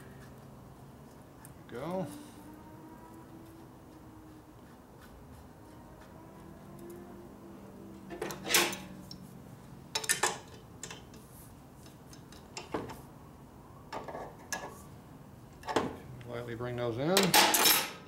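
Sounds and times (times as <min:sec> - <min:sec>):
metal tools clinking: 0:17.2 - 0:18.0.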